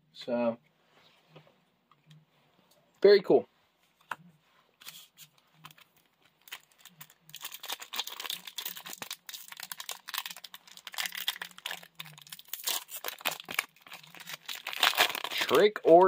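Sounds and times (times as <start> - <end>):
foil wrapper crinkling: 4.8 - 15.7.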